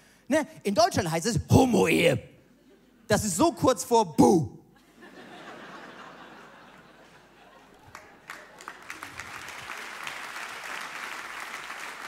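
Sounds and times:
audience clapping: 7.6 - 12.0.

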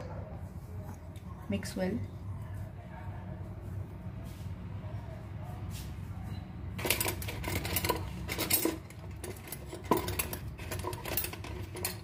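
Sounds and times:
metal spoon scraping a tumbler: 6.8 - 12.0.

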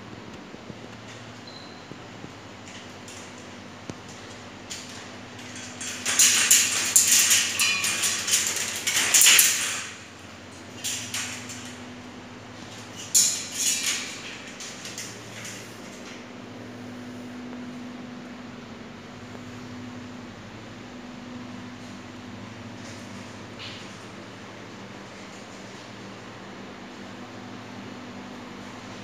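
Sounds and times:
metal cage rattling and scraping: 2.5 - 16.5.

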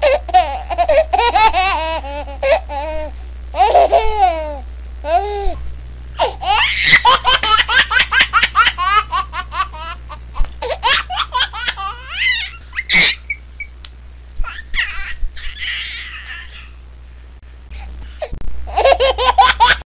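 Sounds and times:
high-pitched laughter: 6.4 - 10.0, 10.8 - 13.4, 14.4 - 16.7.

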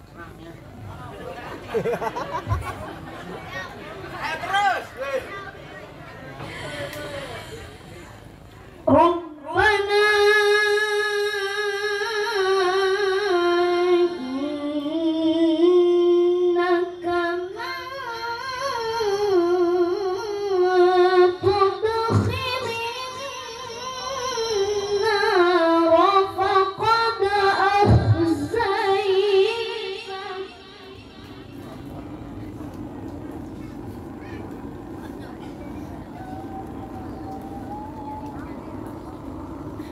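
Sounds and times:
child reciting melodically: 33.7 - 36.2.

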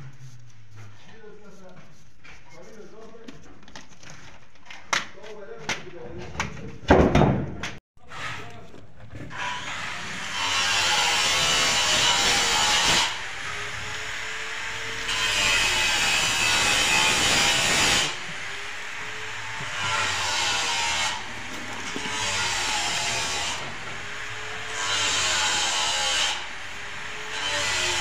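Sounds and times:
paper rasping on plaster: 0.0 - 4.5.

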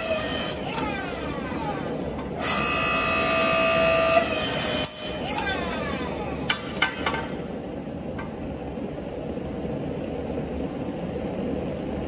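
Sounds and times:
motor and hydraulic pump humming: 0.0 - 9.6.

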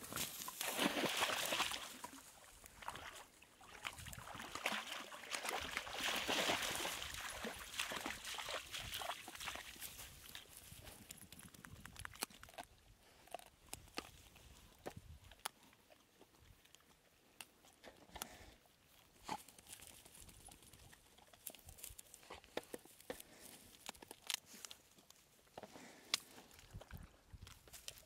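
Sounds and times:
dry grass crunching underfoot: 0.0 - 3.2, 4.2 - 12.3, 19.2 - 28.0.

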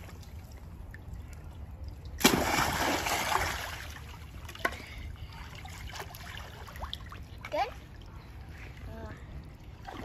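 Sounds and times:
splash into pool water: 2.2 - 4.8.

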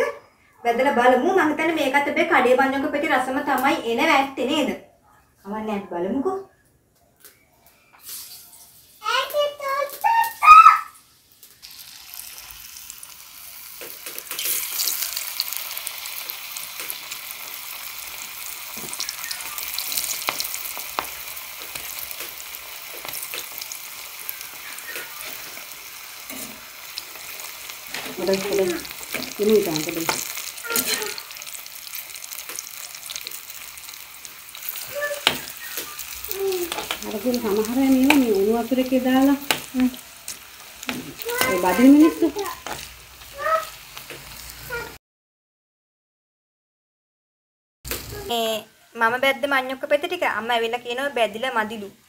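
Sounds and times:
slices sizzling in hot oil: 8.0 - 45.0, 47.9 - 52.0
spoon scraping and clinking on pan: 27.9 - 31.2.

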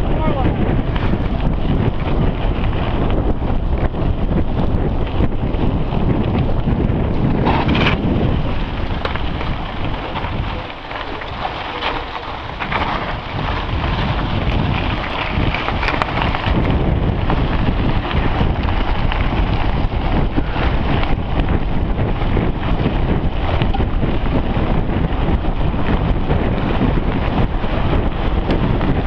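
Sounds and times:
bike rattles and knocks: 0.0 - 29.0
low tyre rumble: 0.0 - 29.0
wind rushing over microphone: 0.0 - 29.0.

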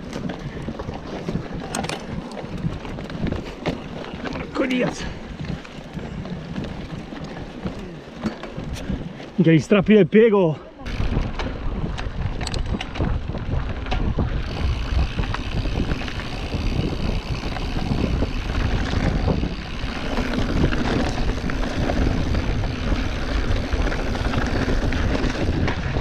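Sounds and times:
bike tyres rumbling on gravel: 0.0 - 26.0
wind on microphone: 10.8 - 26.0.

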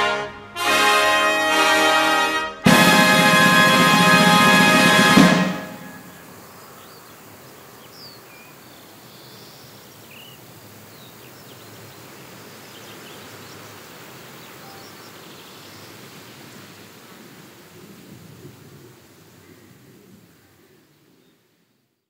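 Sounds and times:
steady background hiss: 0.0 - 22.0
faint bird chirps: 14.5 - 16.0.

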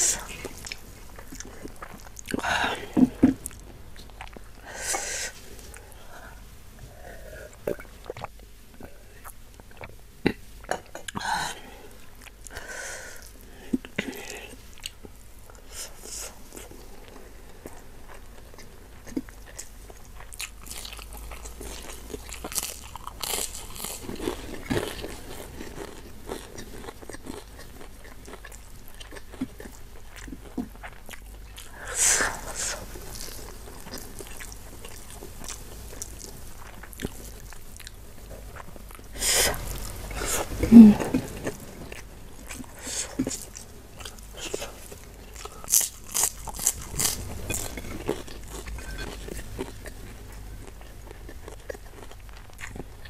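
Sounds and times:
person chewing and crunching food: 0.0 - 11.2, 11.9 - 53.0.

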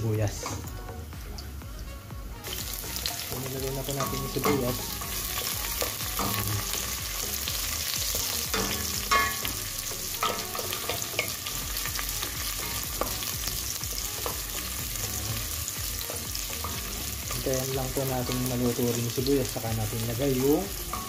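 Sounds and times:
onion sizzling in hot oil: 0.0 - 21.0.

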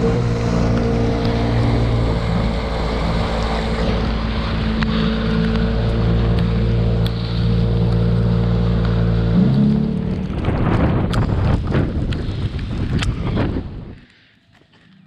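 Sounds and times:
outboard motor running: 0.0 - 13.1
water rushing past hull: 0.0 - 14.0
wind buffeting microphone: 9.4 - 14.1.

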